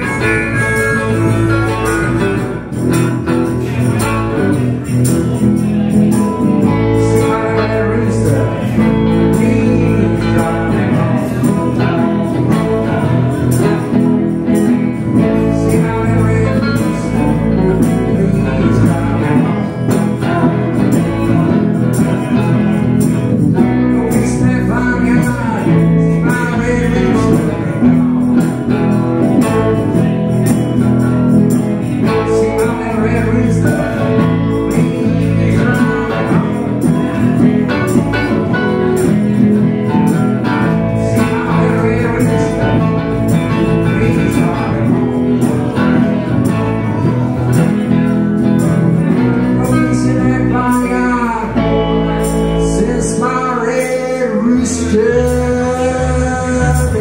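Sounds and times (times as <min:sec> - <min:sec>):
electric guitar: 0:00.0 - 0:57.0
live blues band playing: 0:00.0 - 0:57.0.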